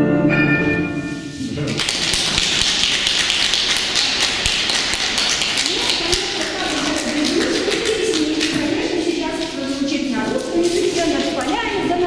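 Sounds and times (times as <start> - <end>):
audience applauding: 1.6 - 12.0
person speaking: 5.6 - 12.0.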